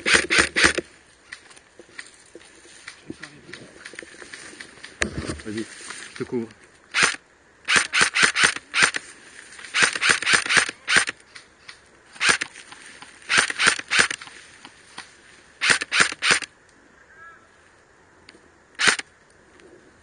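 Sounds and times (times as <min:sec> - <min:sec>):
airsoft rifle shots: 0:00.0 - 0:00.8, 0:06.9 - 0:09.0, 0:09.7 - 0:11.2, 0:12.2 - 0:12.6, 0:13.3 - 0:14.3, 0:15.6 - 0:16.5, 0:18.8 - 0:19.0.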